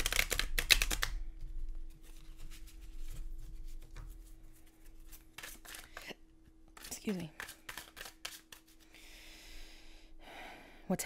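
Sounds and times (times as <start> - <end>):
cards rubbing and tapping: 0.0 - 8.9
faint steady hum: 0.0 - 11.0.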